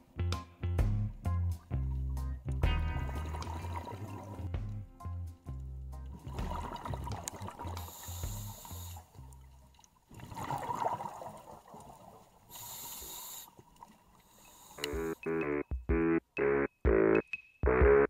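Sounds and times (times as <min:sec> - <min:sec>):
soft background music with beat: 0:00.0 - 0:09.0
exhaled bubbles: 0:06.1 - 0:13.3
diver regulator breathing hiss: 0:07.7 - 0:09.2, 0:12.5 - 0:13.6, 0:14.2 - 0:15.2.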